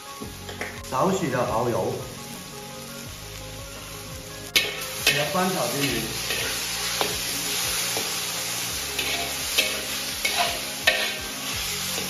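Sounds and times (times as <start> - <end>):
food sizzling in oil: 0.0 - 12.0
spatula scraping wok: 3.8 - 12.0.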